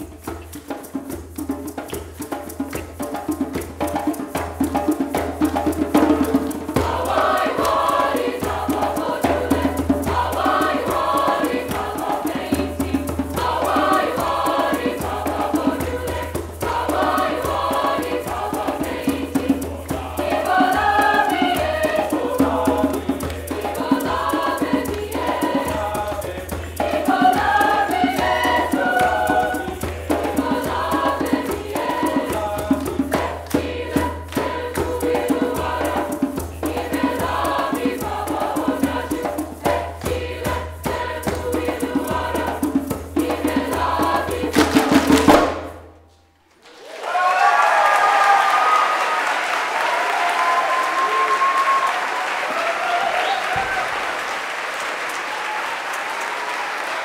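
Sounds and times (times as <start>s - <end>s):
rhythmic hand clapping: 0.0s - 45.7s, 47.8s - 57.0s
choir singing in parts: 3.6s - 45.8s.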